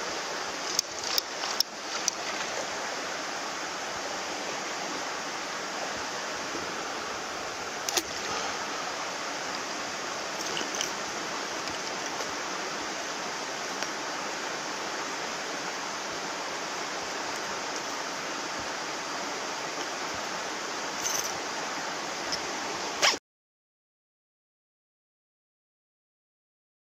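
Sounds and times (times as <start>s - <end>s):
rocky stream rushing: 0.0s - 23.2s.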